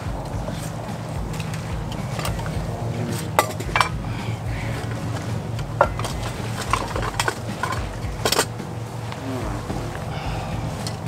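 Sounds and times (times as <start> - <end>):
steady low hum: 0.0 - 11.0
metal cookware clinking: 1.3 - 4.0, 4.8 - 8.6.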